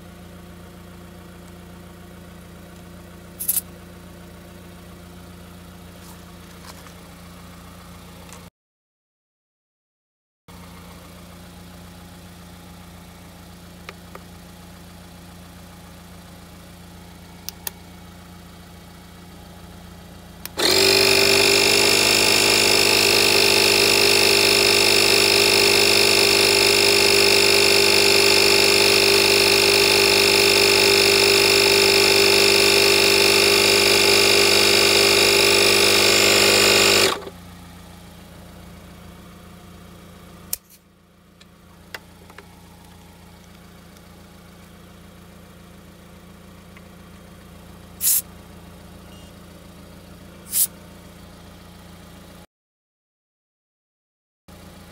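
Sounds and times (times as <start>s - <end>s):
electric air compressor running: 20.4s - 37.4s, 47.9s - 48.4s, 50.4s - 50.8s.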